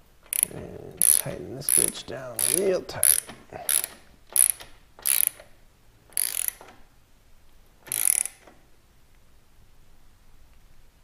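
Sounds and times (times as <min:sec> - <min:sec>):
socket ratchet clicking: 0:00.2 - 0:05.5, 0:06.1 - 0:06.8, 0:07.8 - 0:08.6.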